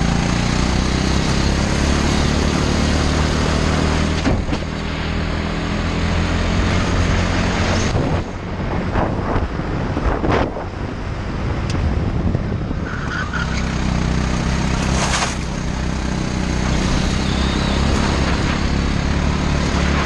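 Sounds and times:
kart engine revving hard: 0.0 - 4.5, 13.3 - 20.0.

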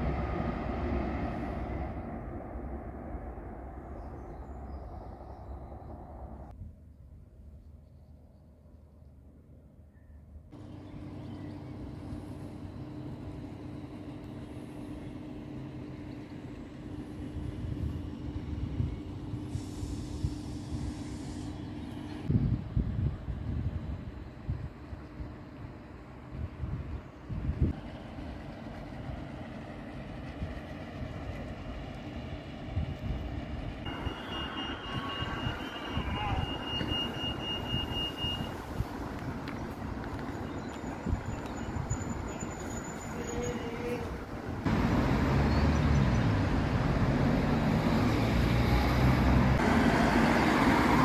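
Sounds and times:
passing traffic rumble: 0.0 - 7.6, 8.2 - 51.0
crossing signal beeping: 33.9 - 38.8.

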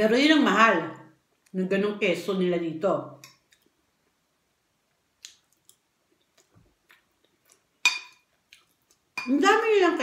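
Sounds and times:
chewing and mouth clicks: 5.2 - 9.1
metal spoon clinking on plate: 7.8 - 8.2.

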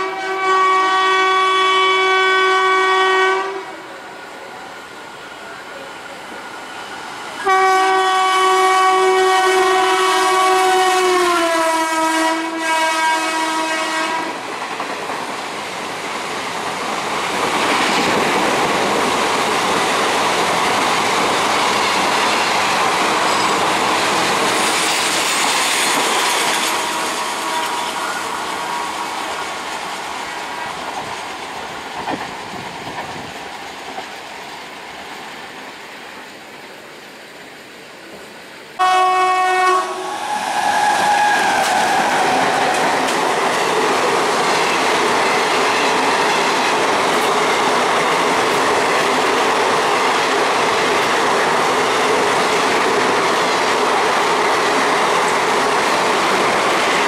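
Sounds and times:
train horn: 0.0 - 4.0, 7.4 - 14.4, 26.5 - 29.6, 38.8 - 42.7
train coaches rushing past: 0.0 - 36.8, 38.0 - 57.0.

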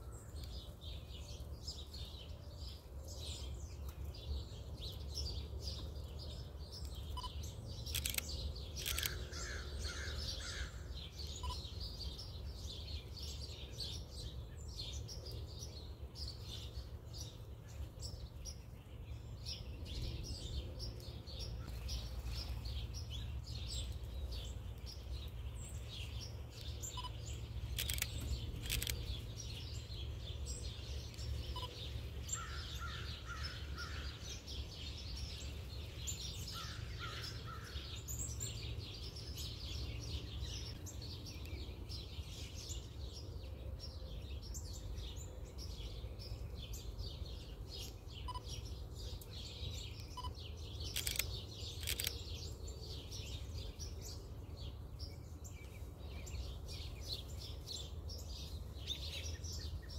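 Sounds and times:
small birds chirping: 0.0 - 59.9
sharp clicks: 7.8 - 9.2, 27.7 - 29.2, 50.9 - 52.2.

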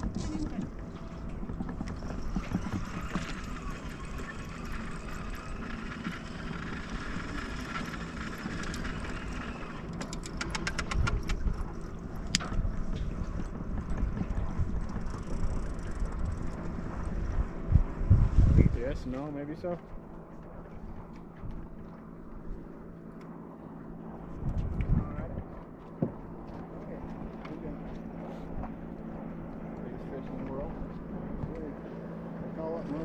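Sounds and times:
churning wake: 0.0 - 33.0
outboard motor running: 0.0 - 33.0
quick clicks: 9.9 - 11.4.

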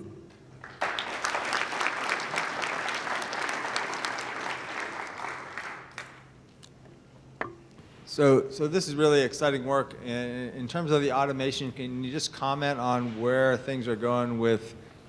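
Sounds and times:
audience applauding: 0.6 - 6.3.

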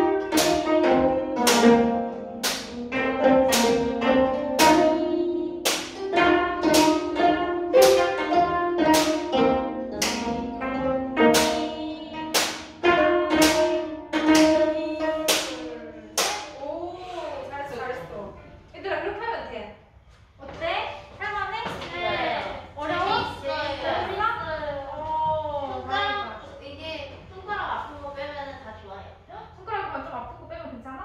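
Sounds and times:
plucked zither melody: 0.0 - 16.2.

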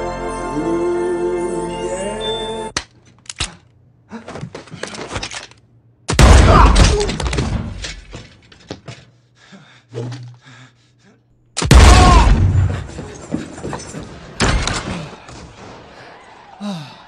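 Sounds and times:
loud gunshots: 6.1 - 7.1, 11.6 - 12.7.

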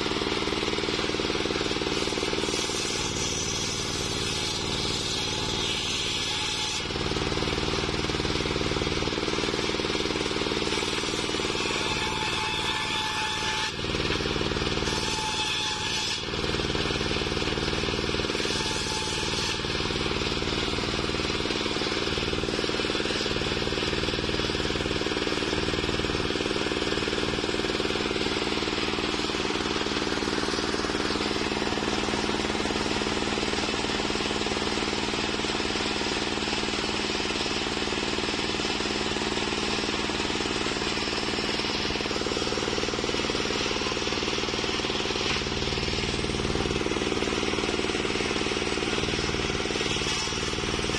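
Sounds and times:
circular saw cutting timber: 0.0 - 50.9
engine drone: 19.5 - 50.9.

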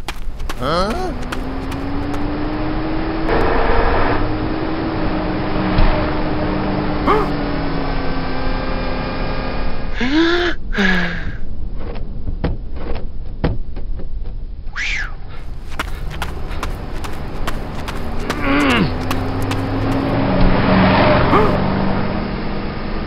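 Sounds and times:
car engine humming: 0.0 - 3.3, 15.4 - 22.2.

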